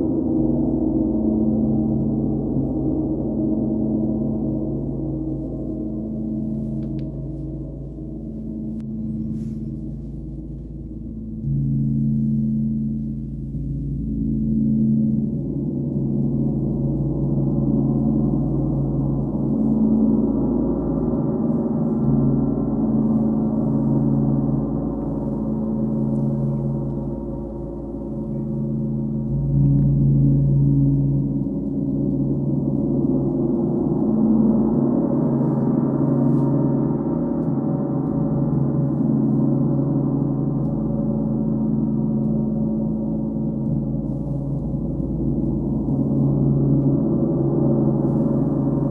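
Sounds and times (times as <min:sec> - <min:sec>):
gong played with soft mallets: 0:00.0 - 0:48.9.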